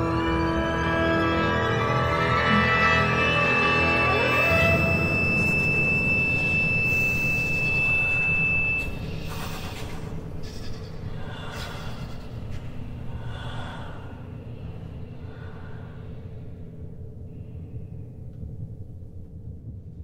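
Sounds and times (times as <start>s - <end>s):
low rumble: 4.2s - 20.0s
breathy air sounds: 7.2s - 19.8s.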